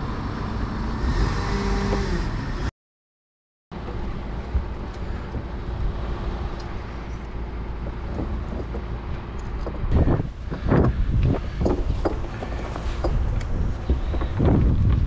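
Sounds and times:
truck engine low rumble: 3.7s - 15.0s.

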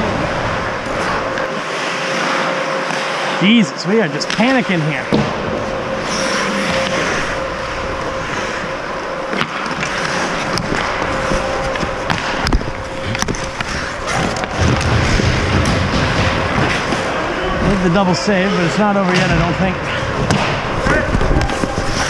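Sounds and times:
skates scraping on ice: 0.2s - 22.0s
sticks and puck clacking: 4.0s - 5.3s, 5.9s - 18.0s, 18.6s - 22.0s.

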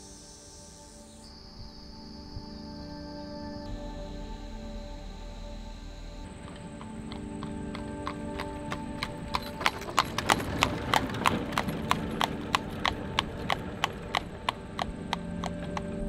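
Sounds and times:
horse hooves clip-clopping on asphalt: 6.5s - 16.0s.

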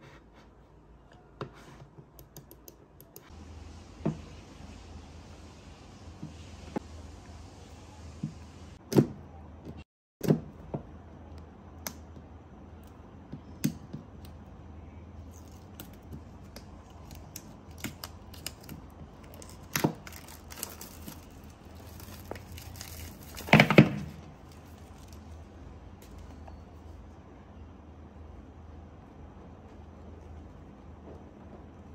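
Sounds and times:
paper and plastic rustling: 17.0s - 26.9s.

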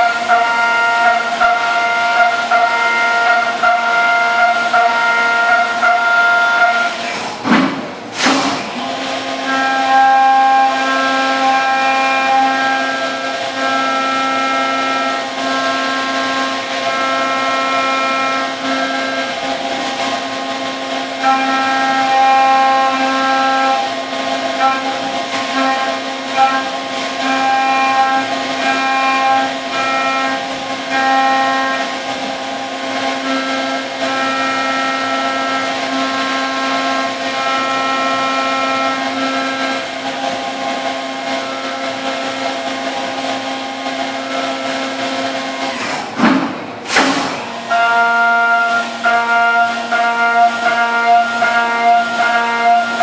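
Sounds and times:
metal cutting tones: 8.1s - 53.0s
milling machine spindle whine: 8.7s - 45.8s.

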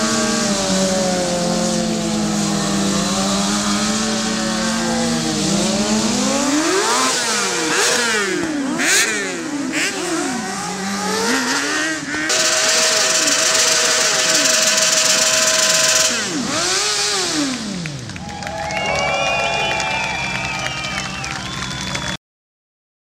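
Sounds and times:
motorcycle engine revving: 0.0s - 18.2s.

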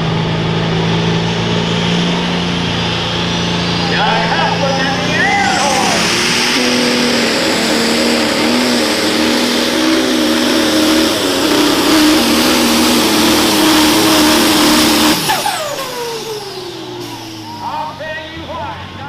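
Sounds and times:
tractor engine running flat out: 0.0s - 19.0s.

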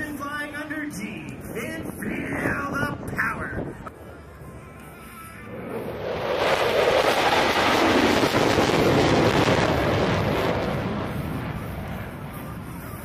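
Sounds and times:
jet roar passing over: 3.9s - 13.0s.

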